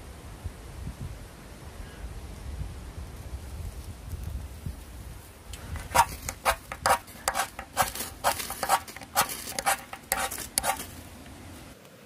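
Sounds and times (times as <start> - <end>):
ferro rod scraped with striker: 5.7 - 11.0.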